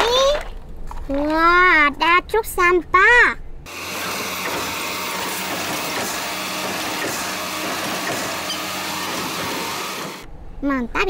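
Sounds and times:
garbage truck idling: 3.7s - 10.3s
hydraulic arm tipping trash cart: 3.7s - 10.3s.

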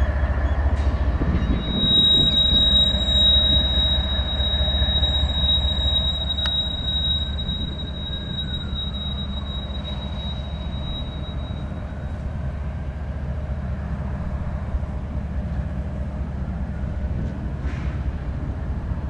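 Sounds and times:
freight train rumbling past: 0.0s - 19.0s
high wheel squeal: 0.1s - 12.5s.

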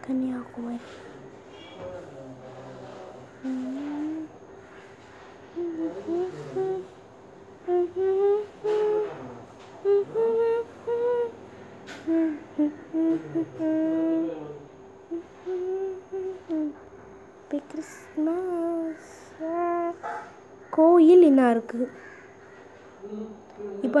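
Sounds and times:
faint steady background tone: 0.0s - 24.0s
person humming: 2.7s - 4.4s, 5.5s - 7.0s, 7.6s - 16.8s, 17.5s - 20.1s.

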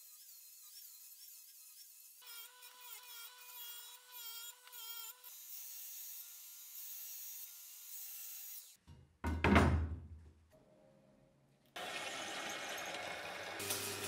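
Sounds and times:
belt grinder whining: 11.8s - 14.0s
grinder on steel plate: 11.8s - 14.0s.

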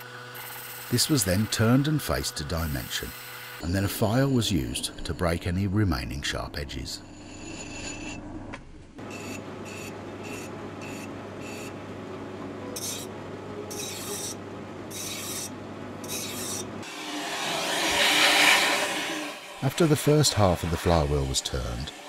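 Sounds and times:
hand file rasping on metal: 12.8s - 13.1s, 13.7s - 16.7s
lathe motor hum: 12.8s - 22.0s
vacuum cleaner rushing: 16.8s - 22.0s.

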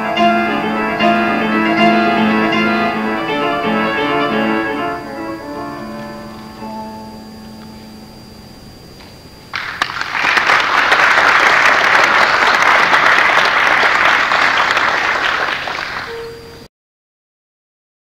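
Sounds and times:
audience applause: 9.5s - 16.2s.

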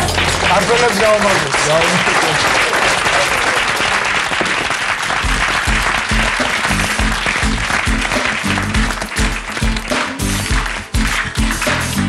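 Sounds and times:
live band with bass beat: 0.0s - 0.8s, 5.2s - 12.0s
audience applauding: 0.0s - 12.0s.

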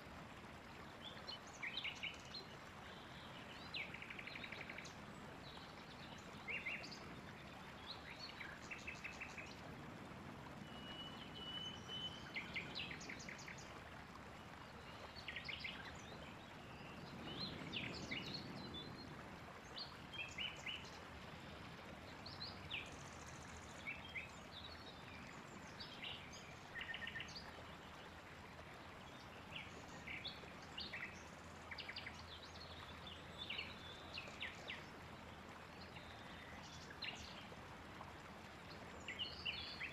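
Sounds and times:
faint steady hiss: 0.0s - 39.9s.

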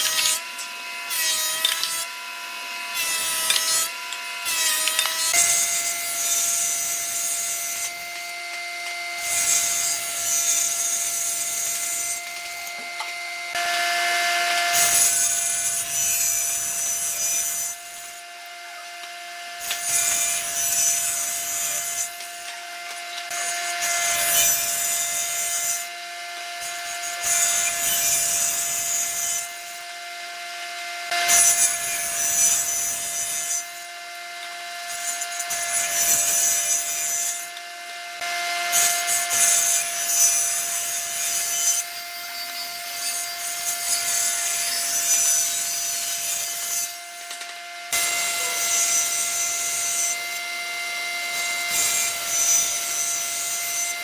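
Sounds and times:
thickness planer running: 0.0s - 27.8s
saw blade cutting wood: 0.0s - 54.0s
table saw motor whine: 0.0s - 54.0s.

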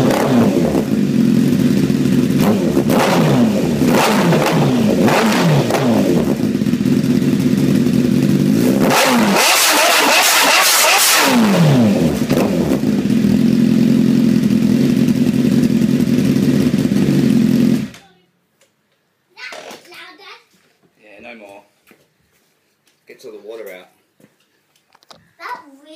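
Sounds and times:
motorcycle engine revving: 0.0s - 18.0s.

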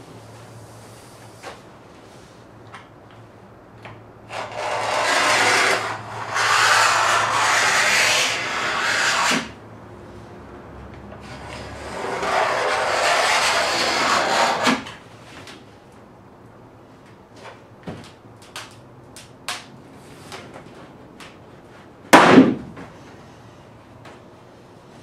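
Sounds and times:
utility knife scoring laminate: 3.8s - 9.6s, 11.1s - 15.0s
laminate sheet flexing clicks: 18.0s - 19.7s.

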